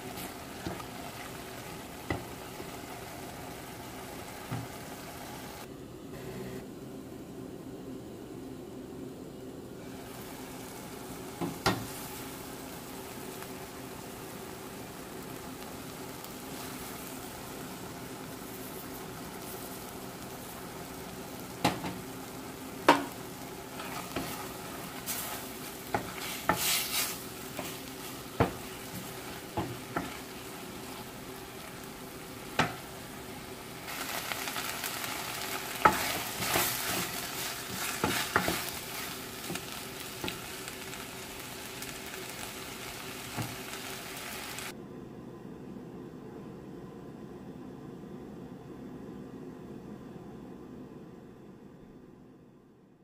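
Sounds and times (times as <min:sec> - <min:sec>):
frying sizzle: 0:00.0 - 0:05.7, 0:09.8 - 0:44.8
low steady hum: 0:00.0 - 0:53.0.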